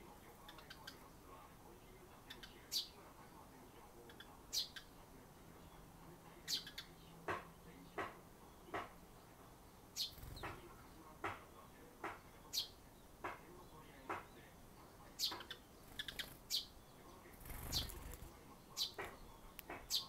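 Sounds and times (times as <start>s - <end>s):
sparrows chirping: 0.0s - 20.0s
wings fluttering: 10.1s - 10.6s, 15.8s - 16.5s, 17.3s - 18.4s.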